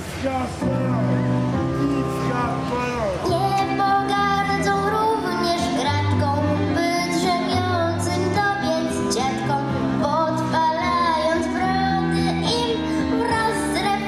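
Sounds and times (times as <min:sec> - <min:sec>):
girl singing into microphone: 0:03.2 - 0:14.0.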